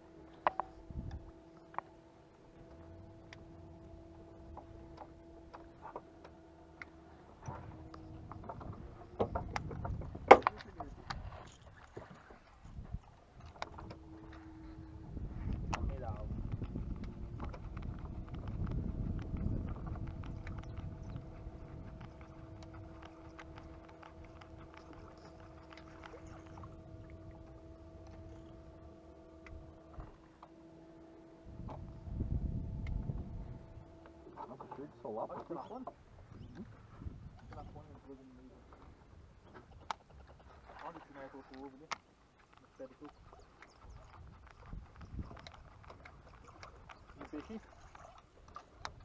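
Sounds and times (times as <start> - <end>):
fishing tackle knocking on boat hull: 8.4 - 10.9
faint steady hum: 10.7 - 37.4.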